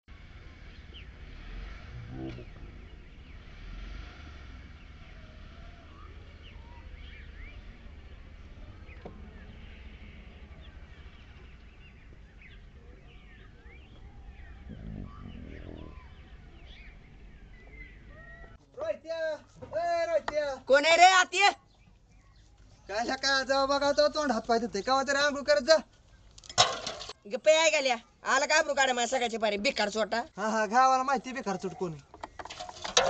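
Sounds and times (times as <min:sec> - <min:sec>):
low outdoor rumble: 0:00.1 - 0:18.6
small birds chirping: 0:00.6 - 0:03.7, 0:04.5 - 0:18.7, 0:20.0 - 0:26.5
low bird call: 0:01.9 - 0:03.4, 0:12.3 - 0:18.6.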